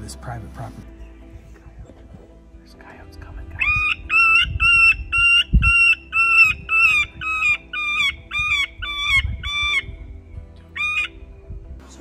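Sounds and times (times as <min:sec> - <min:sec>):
squawking distress call: 0:03.6 - 0:10.0.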